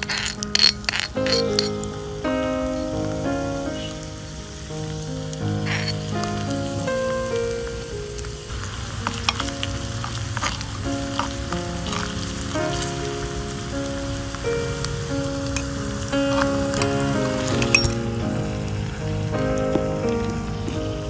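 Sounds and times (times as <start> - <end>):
spatula stirring: 0.0 - 2.0, 5.6 - 6.5, 8.5 - 13.3
background music melody: 0.0 - 21.0
food sizzling in hot oil: 0.0 - 21.0.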